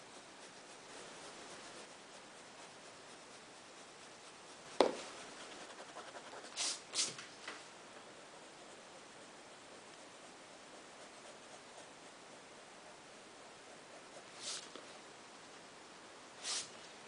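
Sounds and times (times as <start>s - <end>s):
pencil scratching on paper: 0.0s - 7.2s, 9.7s - 14.9s
pencil tap: 4.8s - 5.0s.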